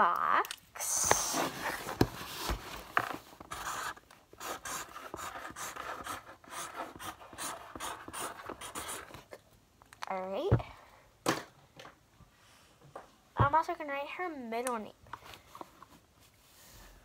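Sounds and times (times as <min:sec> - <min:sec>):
marker pen writing on cardboard: 0:03.5 - 0:09.2.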